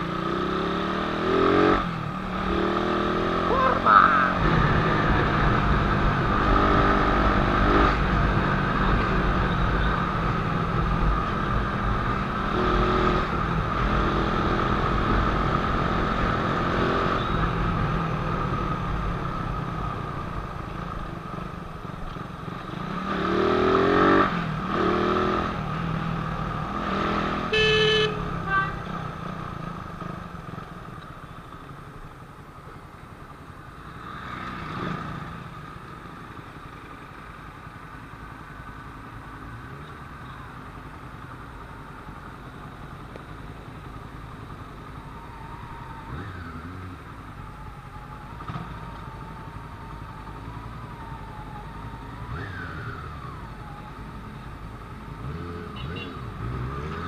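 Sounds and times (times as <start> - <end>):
road and wind noise: 0.0 - 57.0
horn tooting: 27.4 - 28.9, 55.7 - 56.4.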